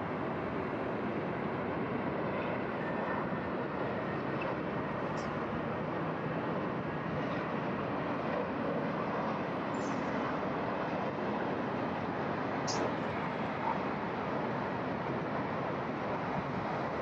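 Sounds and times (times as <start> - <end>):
jet engines roaring: 0.0 - 17.0.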